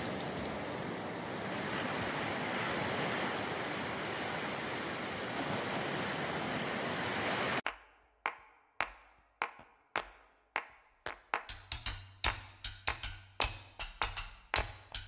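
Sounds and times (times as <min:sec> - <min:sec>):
rough sea surf: 0:00.0 - 0:07.7
wind: 0:00.0 - 0:07.8.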